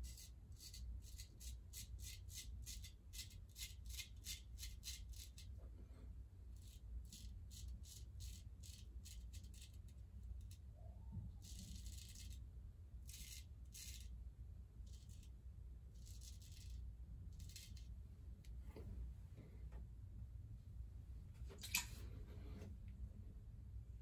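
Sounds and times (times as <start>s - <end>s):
straight razor scraping stubble: 16.0s - 17.9s.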